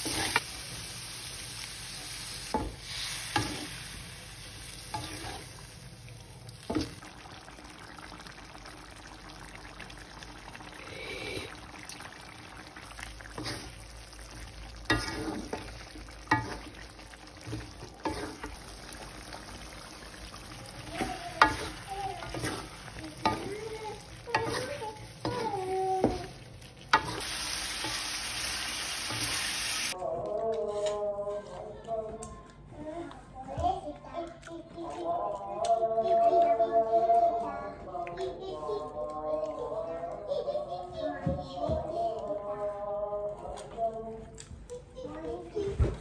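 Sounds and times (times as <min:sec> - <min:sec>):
spatula scraping a wok: 0:00.0 - 0:00.4, 0:04.8 - 0:05.6, 0:14.9 - 0:15.7, 0:17.4 - 0:18.6, 0:20.9 - 0:28.2
food sizzling in a wok: 0:00.0 - 0:30.0.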